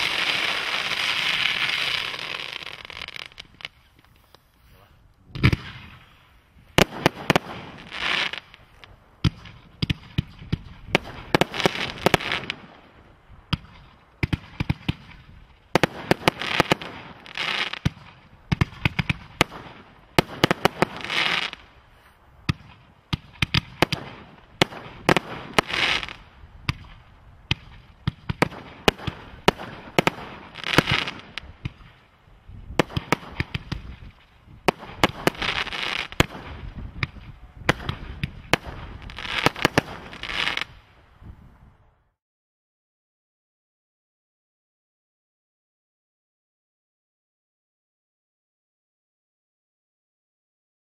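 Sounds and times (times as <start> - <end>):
fireworks banging and crackling: 0.0 - 4.5, 5.3 - 21.8, 22.4 - 40.9.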